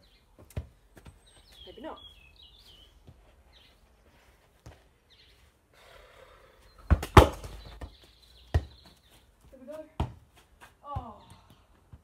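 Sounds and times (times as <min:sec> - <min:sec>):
football kicked thuds: 0:06.8 - 0:08.9, 0:10.0 - 0:10.3.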